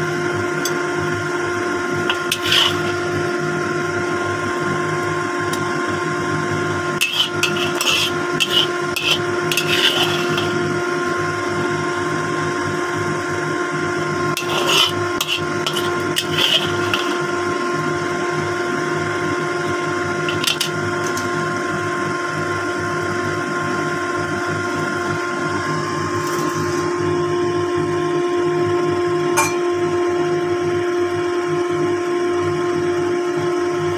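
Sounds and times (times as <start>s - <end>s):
steady hum with tones: 0.0s - 23.4s, 24.6s - 31.1s
spatula scraping a wok: 2.0s - 3.4s, 6.9s - 10.9s, 14.3s - 17.8s, 20.2s - 21.4s.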